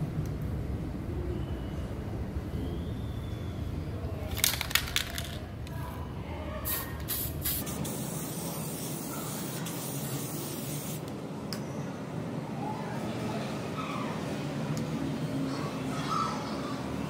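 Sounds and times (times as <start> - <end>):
spray paint can hissing: 6.6 - 11.1.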